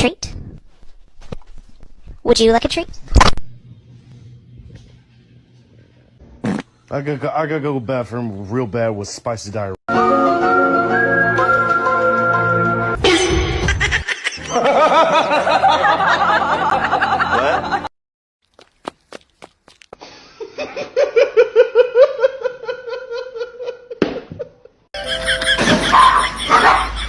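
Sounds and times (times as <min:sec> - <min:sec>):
people laughing: 0:13.1 - 0:17.9, 0:20.0 - 0:27.0.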